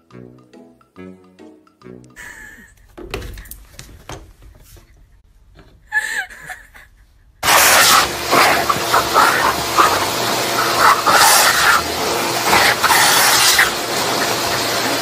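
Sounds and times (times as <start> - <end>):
air blower rushing: 7.4 - 15.0.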